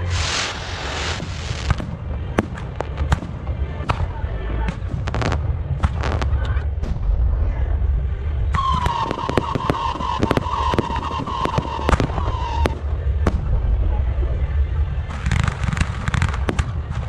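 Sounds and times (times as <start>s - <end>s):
high whistle of fireworks: 0.0s - 1.9s, 8.5s - 13.2s
fireworks bangs: 0.0s - 17.0s.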